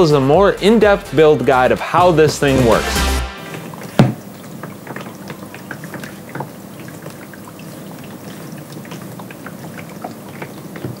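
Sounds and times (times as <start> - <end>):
water popping in humidifier: 3.5 - 11.0.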